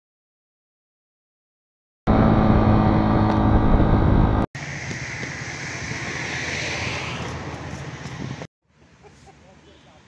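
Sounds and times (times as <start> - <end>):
distant traffic: 2.1 - 10.0
motor engine rumbling: 2.1 - 10.0
wind noise: 2.3 - 8.5.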